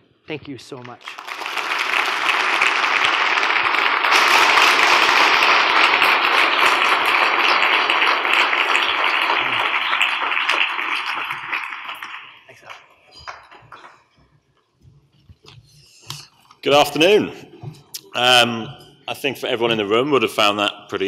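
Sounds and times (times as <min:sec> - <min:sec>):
large audience applauding: 0:00.8 - 0:14.1.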